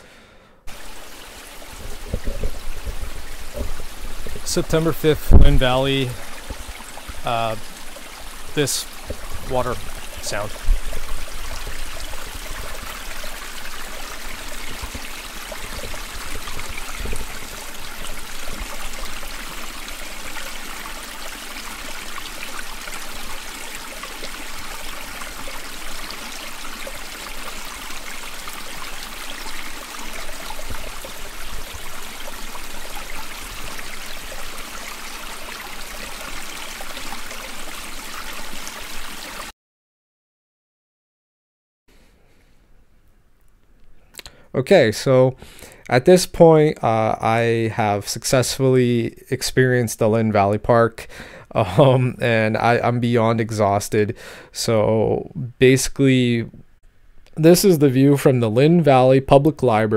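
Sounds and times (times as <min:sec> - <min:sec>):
creek water flowing: 0:00.7 - 0:39.5.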